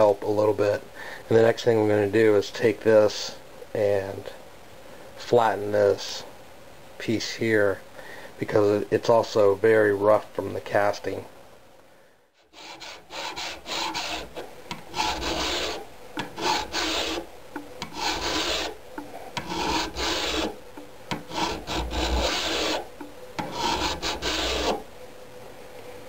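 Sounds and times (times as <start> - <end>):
hand file rasping on cast iron: 12.5 - 24.8.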